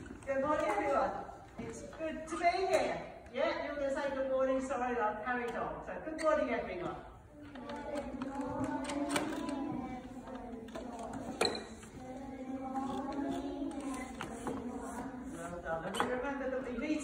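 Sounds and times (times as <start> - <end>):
children chanting in unison: 7.4 - 15.6.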